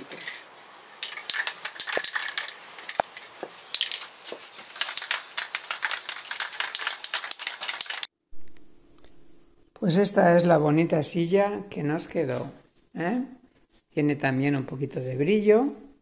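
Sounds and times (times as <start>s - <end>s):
plastic sheeting crinkling: 0.0s - 8.1s.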